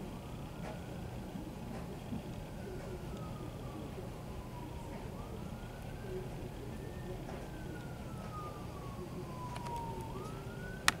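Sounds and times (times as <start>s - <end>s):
emergency siren wailing: 0.0s - 11.0s.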